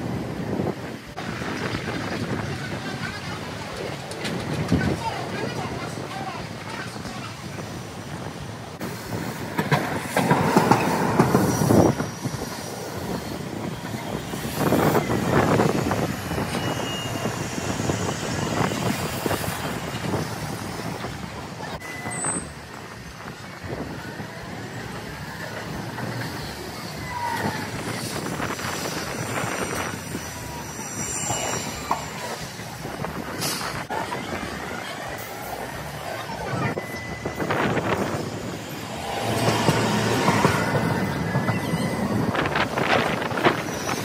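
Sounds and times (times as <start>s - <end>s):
streetcar wheels rumbling on rails: 0.0s - 44.0s
high wheel squeals: 10.2s - 23.1s, 23.8s - 44.0s.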